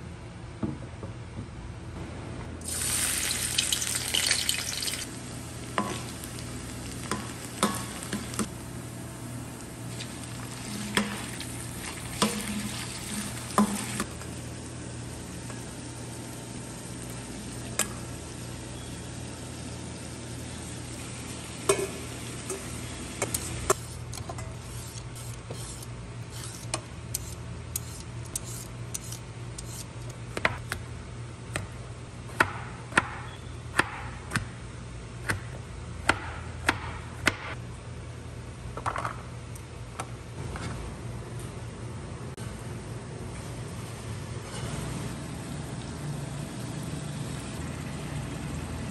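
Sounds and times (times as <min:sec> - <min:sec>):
chicken sizzling in hot oil: 0:02.6 - 0:08.4.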